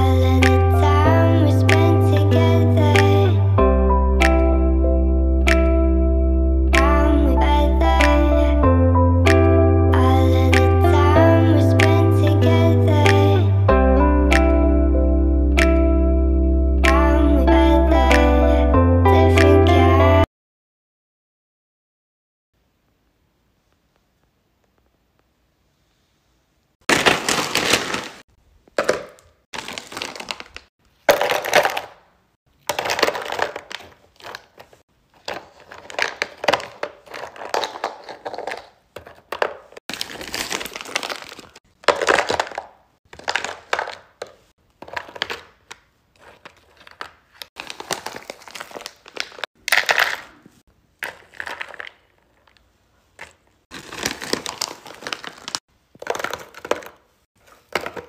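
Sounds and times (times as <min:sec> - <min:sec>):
plastic bags crinkling: 0:26.9 - 0:28.2, 0:28.8 - 0:58.0.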